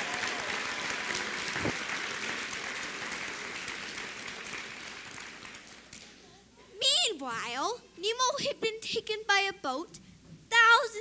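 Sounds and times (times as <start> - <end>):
audience applause: 0.0 - 6.0.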